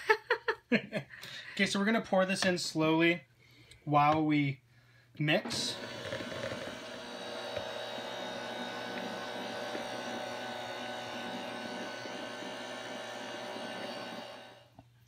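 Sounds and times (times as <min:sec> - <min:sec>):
electric hand mixer whining: 0:05.4 - 0:14.8.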